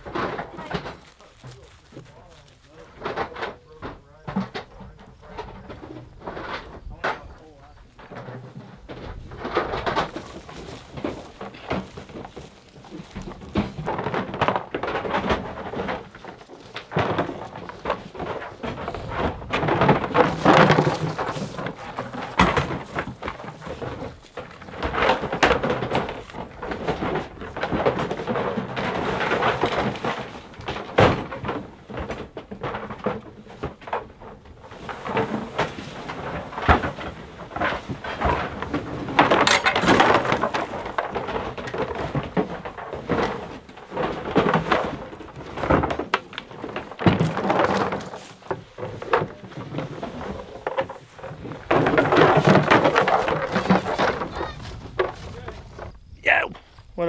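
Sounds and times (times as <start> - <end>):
decoys thunking and clattering: 0.0 - 56.6
rustling: 0.0 - 57.0.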